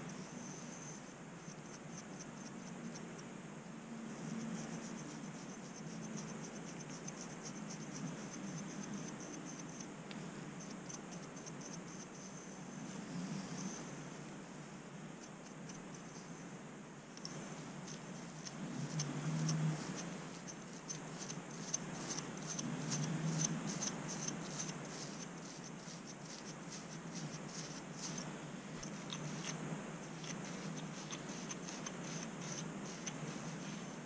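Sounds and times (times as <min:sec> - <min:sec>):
low steady hum: 0:00.0 - 0:34.0
fingers scratching scalp: 0:04.2 - 0:09.9, 0:17.2 - 0:34.0.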